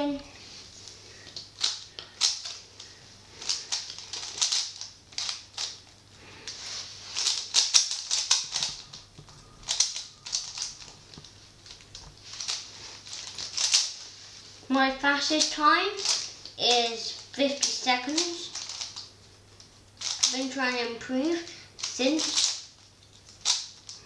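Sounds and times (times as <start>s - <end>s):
puzzle cube clicking and clacking: 1.2s - 5.9s, 7.2s - 14.0s, 15.2s - 16.6s, 17.4s - 19.1s, 20.0s - 20.6s, 21.8s - 24.0s.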